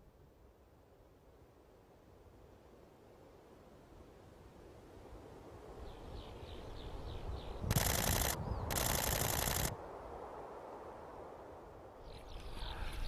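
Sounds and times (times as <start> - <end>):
camera shutter bursts: 7.7 - 9.8.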